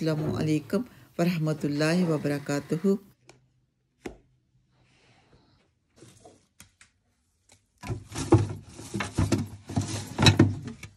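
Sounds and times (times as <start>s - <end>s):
plastic containers clattering in fridge: 7.8s - 10.9s.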